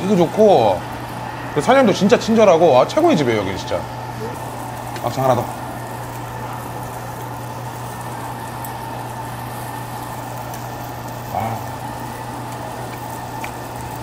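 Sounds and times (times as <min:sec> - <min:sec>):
meat sizzling on a grill: 0:00.0 - 0:14.0
steady low hum: 0:00.0 - 0:14.0
person grunting: 0:11.3 - 0:11.8.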